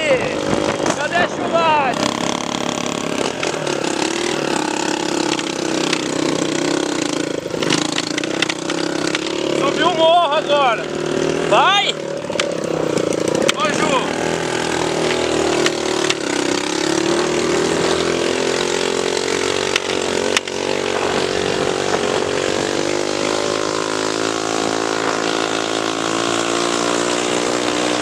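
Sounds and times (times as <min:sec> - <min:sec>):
wind noise: 0:00.0 - 0:02.2, 0:20.6 - 0:22.9
motorcycle engine running: 0:00.0 - 0:28.0
road noise: 0:00.0 - 0:28.0.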